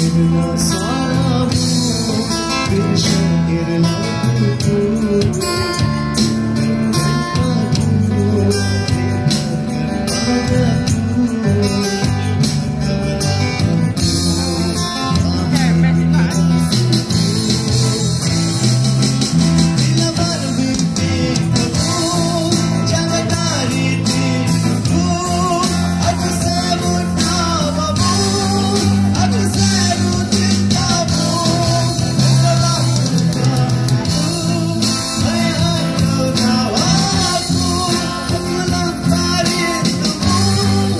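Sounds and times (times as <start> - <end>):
man and woman singing: 0.0 - 5.9, 9.8 - 12.3, 19.6 - 40.9
bass line: 0.0 - 40.9
electric guitar: 0.0 - 40.9
keyboard: 0.0 - 40.9.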